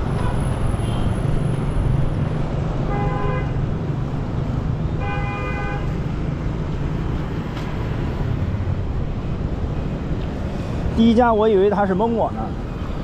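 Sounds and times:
low rumble of street traffic: 0:00.0 - 0:13.0
vehicle horn honking: 0:02.9 - 0:03.6, 0:05.0 - 0:06.0.

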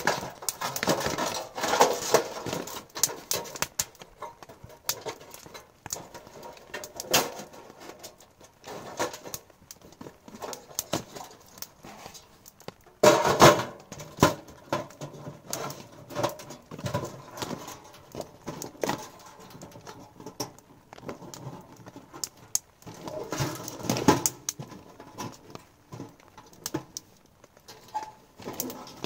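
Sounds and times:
irregular patter and rustling: 0:00.0 - 0:29.0.

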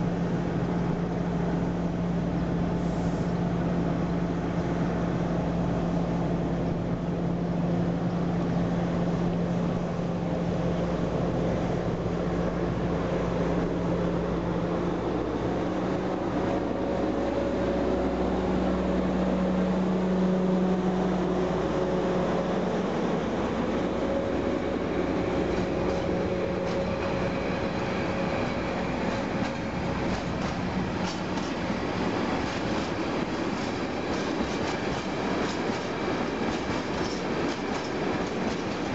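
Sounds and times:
diesel locomotive engine droning: 0:00.0 - 0:38.9
train wheels clacking over rail joints: 0:25.4 - 0:38.9.

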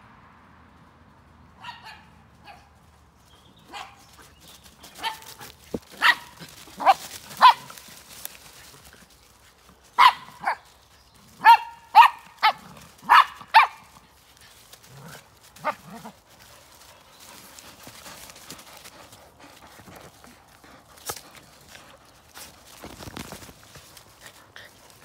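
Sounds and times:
dog barking: 0:01.6 - 0:02.7, 0:06.0 - 0:07.7, 0:10.0 - 0:10.6, 0:11.4 - 0:13.9.

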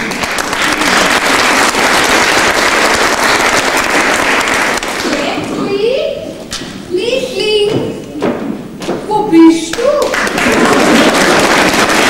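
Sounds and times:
audience applauding: 0:00.0 - 0:05.4, 0:09.7 - 0:12.0.

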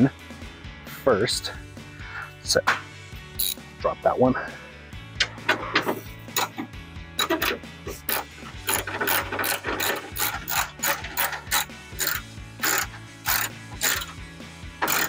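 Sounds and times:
socket ratchet clicking: 0:03.4 - 0:03.6, 0:06.3 - 0:06.6, 0:07.2 - 0:14.2.

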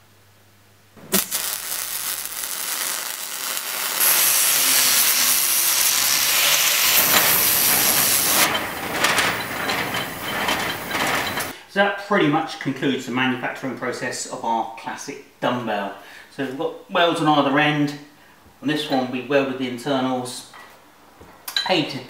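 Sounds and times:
arc welding crackling: 0:01.0 - 0:11.6
aerosol spray can hissing: 0:01.1 - 0:08.5.

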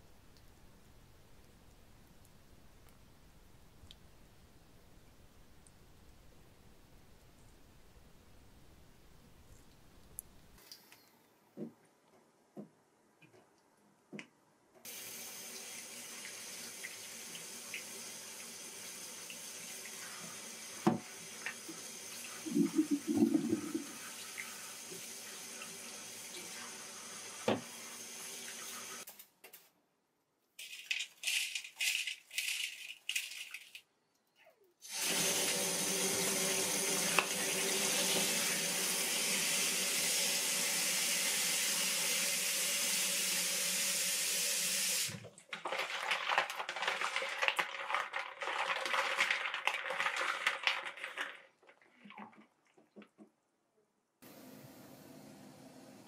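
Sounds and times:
tap water running into sink: 0:14.9 - 0:29.0, 0:34.9 - 0:53.3
hands rubbing and splashing snails: 0:22.4 - 0:24.0, 0:30.6 - 0:33.9, 0:45.4 - 0:53.1.

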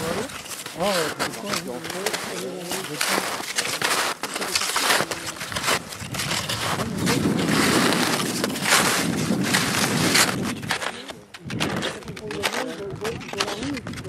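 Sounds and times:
snowshoe steps crunching in snow: 0:00.0 - 0:11.1.

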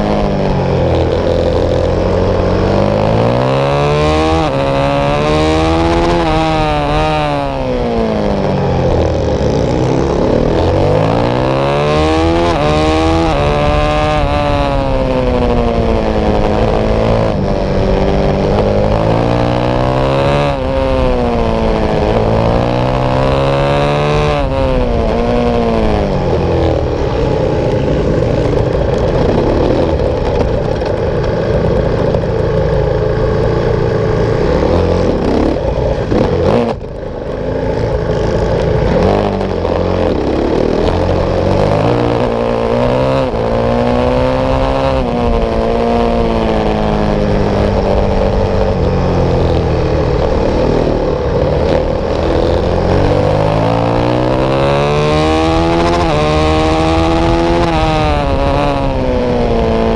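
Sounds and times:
motorcycle engine revving: 0:00.0 - 0:59.9
wind rushing over microphone: 0:00.0 - 0:59.9.

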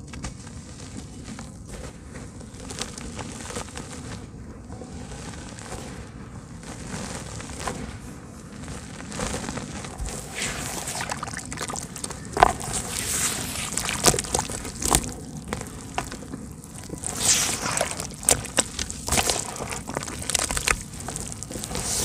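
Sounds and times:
sharp crackles: 0:00.0 - 0:22.0
wet mud squelching: 0:09.3 - 0:22.0.

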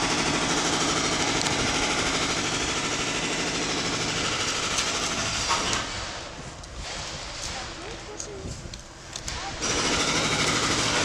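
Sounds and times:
jackhammer hammering: 0:00.0 - 0:06.2, 0:09.4 - 0:11.0.

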